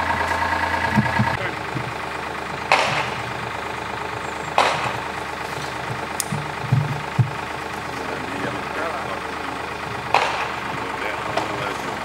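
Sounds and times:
drilling rig engine running: 0:00.0 - 0:12.0
dull low thuds: 0:00.9 - 0:03.6, 0:04.5 - 0:07.9
sharp metal clanks: 0:04.6 - 0:07.5.

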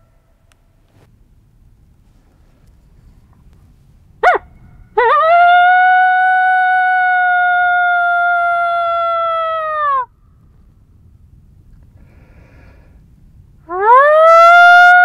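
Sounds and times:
coyote call yelp and howl: 0:04.2 - 0:10.1, 0:13.7 - 0:15.0.

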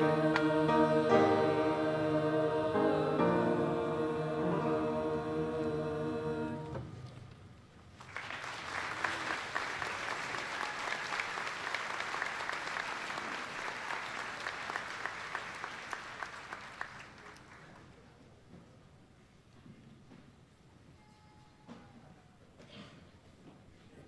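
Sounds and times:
choir singing a chord: 0:00.0 - 0:07.1
audience applauding: 0:08.0 - 0:17.8.

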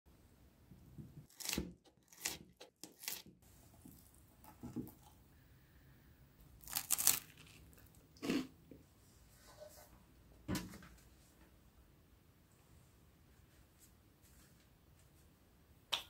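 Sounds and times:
knife cutting crunchy food: 0:01.3 - 0:03.3, 0:06.6 - 0:08.4.

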